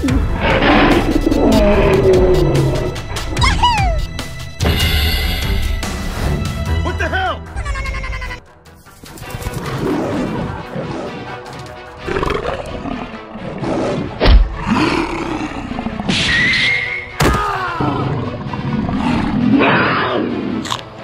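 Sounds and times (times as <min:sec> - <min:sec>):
animal roars and growls: 0:00.0 - 0:04.2, 0:09.4 - 0:16.8, 0:17.7 - 0:20.8
background music: 0:00.0 - 0:21.0.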